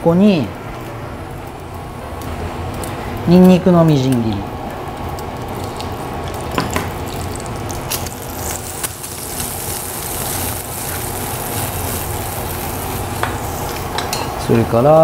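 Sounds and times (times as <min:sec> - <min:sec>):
garlic sizzling in oil: 0:05.0 - 0:14.8.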